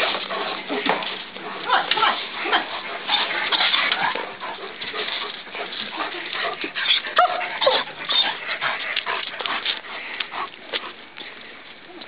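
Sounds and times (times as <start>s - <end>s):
dogs whining and yelping: 2.4s - 10.5s.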